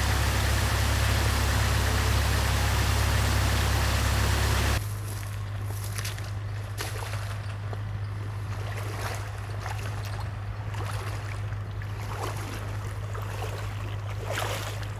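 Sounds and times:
excavator diesel engine humming: 0:00.0 - 0:06.8
stream water trickling: 0:00.0 - 0:14.9.

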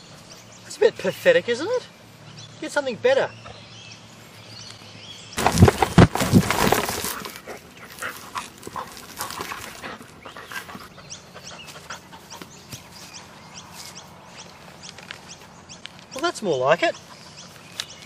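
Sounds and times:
knocks and rustling: 0:05.4 - 0:10.1
dog panting: 0:07.1 - 0:13.2.

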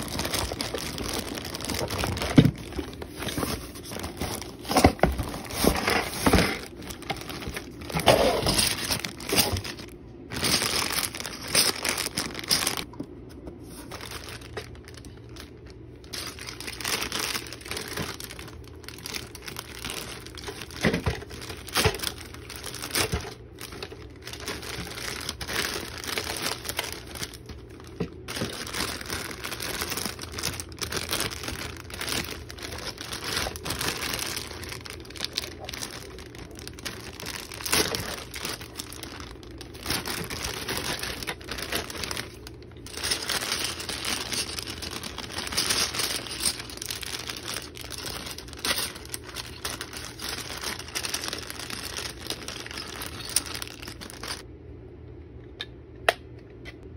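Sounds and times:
plastic bags crinkling: 0:00.0 - 0:54.5.

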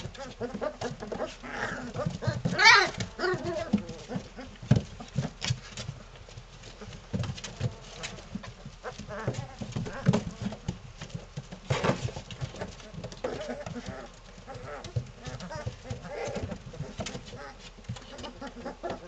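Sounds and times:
puppies yipping and squealing: 0:00.0 - 0:05.3, 0:12.4 - 0:19.0
puppies growling: 0:00.0 - 0:19.0
thump: 0:11.7 - 0:12.2.

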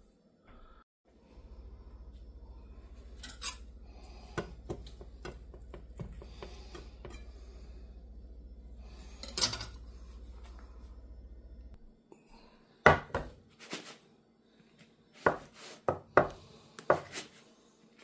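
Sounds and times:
low hum: 0:00.4 - 0:12.7.

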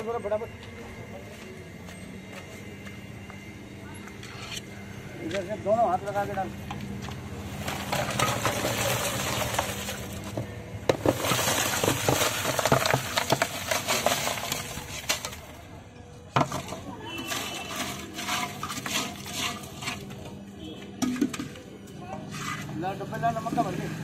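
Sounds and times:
ice clinking on metal moulds: 0:06.6 - 0:22.8
crushed ice clattering into pot: 0:07.4 - 0:15.7, 0:16.3 - 0:20.4.

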